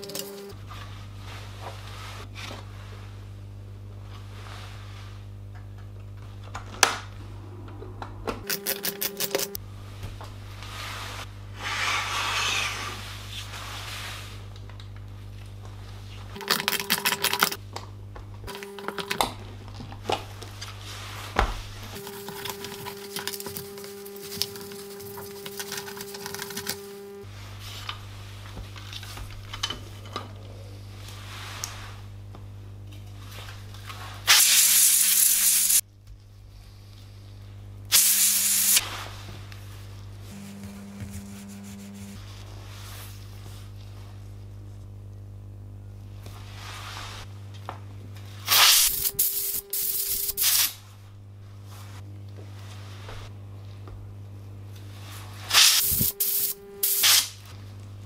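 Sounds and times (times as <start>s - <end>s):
steady low hum: 0.0s - 34.3s, 35.0s - 58.0s
rubbing sound: 40.3s - 43.5s.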